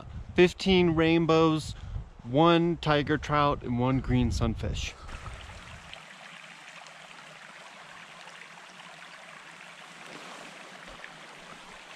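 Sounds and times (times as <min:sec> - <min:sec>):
creek running over rocks: 0:05.1 - 0:11.9.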